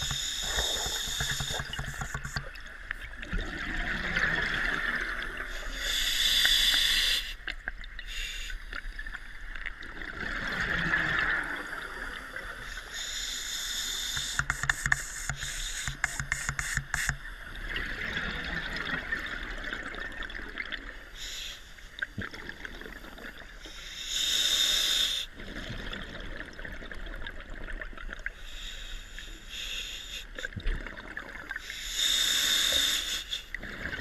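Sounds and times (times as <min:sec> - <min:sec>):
diver breathing through regulator: 0:00.0 - 0:02.4, 0:31.6 - 0:33.6
exhaled bubbles rushing: 0:00.5 - 0:05.5, 0:09.8 - 0:12.2.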